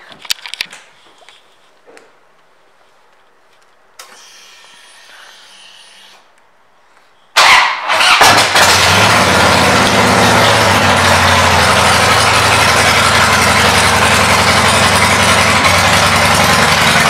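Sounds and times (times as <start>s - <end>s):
motorcycle engine idling: 8.9s - 17.0s.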